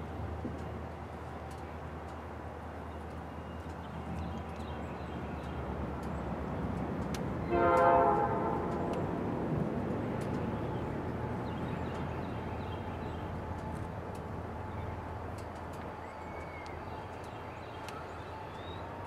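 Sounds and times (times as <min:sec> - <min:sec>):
diesel locomotive engine drone: 0:00.0 - 0:19.0
air horn blast: 0:07.5 - 0:08.9.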